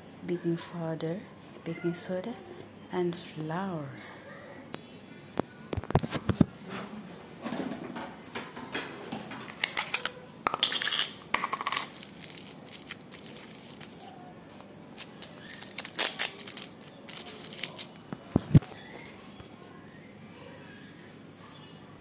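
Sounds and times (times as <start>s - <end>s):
kitchen items clinking: 7.5s - 19.1s
packaging rustling: 9.4s - 19.4s.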